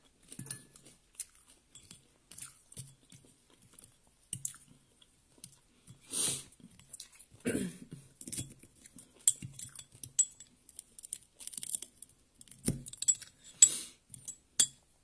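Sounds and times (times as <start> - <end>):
light clinks against a ceramic bowl: 9.3 - 10.5, 14.2 - 14.8.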